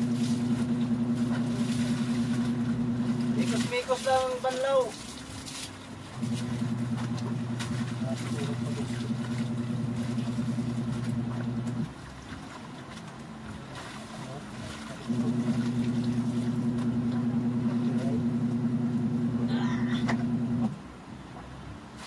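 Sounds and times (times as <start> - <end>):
water splashing: 0.0 - 20.7
electric motor humming: 15.1 - 20.7.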